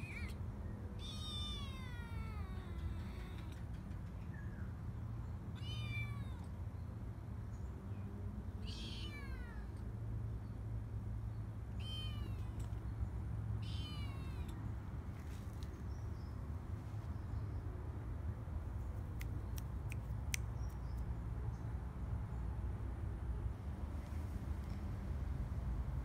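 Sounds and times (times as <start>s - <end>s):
kitten meowing: 0.0s - 0.4s, 1.0s - 3.6s, 5.6s - 6.5s, 8.6s - 9.8s, 11.8s - 12.6s, 13.6s - 14.6s.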